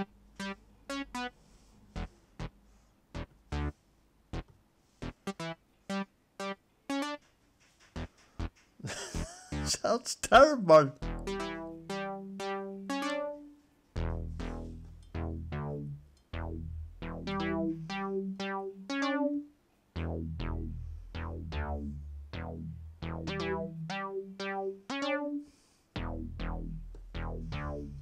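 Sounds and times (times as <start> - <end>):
low synth bass: 11.0 - 13.4, 14.0 - 25.4, 26.0 - 28.0
short synth notes: 11.0 - 28.0.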